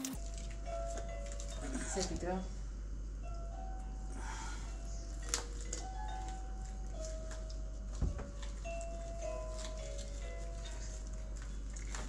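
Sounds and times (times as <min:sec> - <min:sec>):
bell-like background music: 0:00.1 - 0:02.5, 0:03.2 - 0:11.9.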